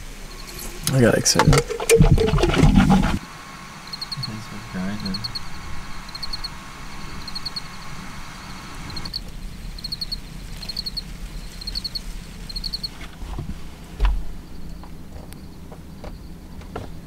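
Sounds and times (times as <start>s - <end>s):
insects chirping in rapid trills: 0.0s - 13.0s
faint steady hum: 0.0s - 17.0s.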